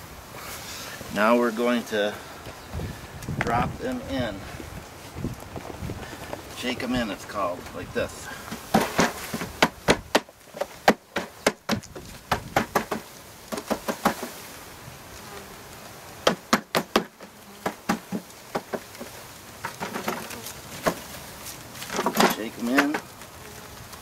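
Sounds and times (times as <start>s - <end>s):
honeybees buzzing: 0.0s - 24.0s
sharp knocks on bee package: 8.6s - 14.3s, 16.2s - 21.0s.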